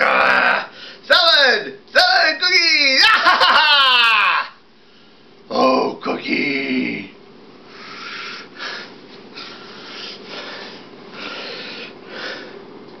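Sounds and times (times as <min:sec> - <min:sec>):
person crying out: 0:00.0 - 0:00.7, 0:02.8 - 0:04.6
breathy puffs: 0:07.7 - 0:12.6.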